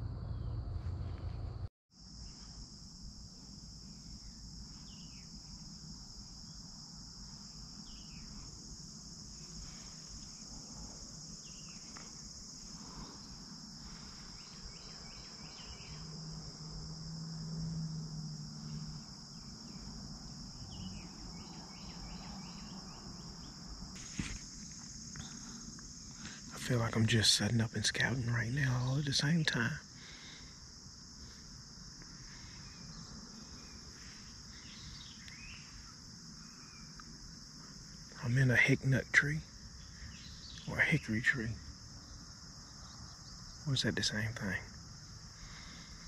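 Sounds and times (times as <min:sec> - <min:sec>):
low hum: 0:00.0 - 0:06.6, 0:07.2 - 0:27.0
high-pitched insect chorus: 0:02.0 - 0:46.0.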